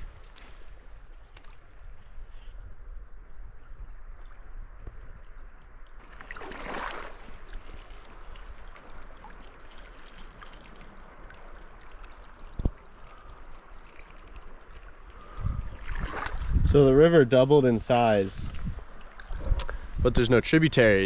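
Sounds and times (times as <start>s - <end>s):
river water flowing: 5.7s - 16.6s, 17.6s - 20.0s.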